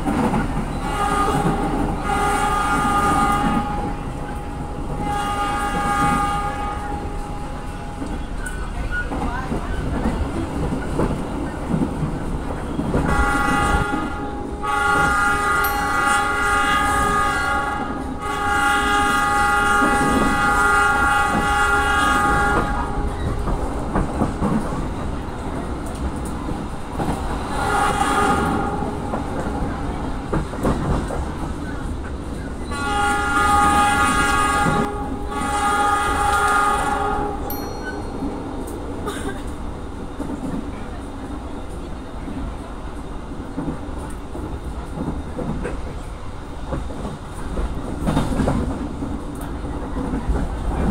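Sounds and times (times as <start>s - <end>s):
train rumble and clickety-clack: 0.0s - 50.9s
locomotive air horn blasts: 0.8s - 7.8s, 13.0s - 23.2s, 27.6s - 29.1s, 32.7s - 37.5s.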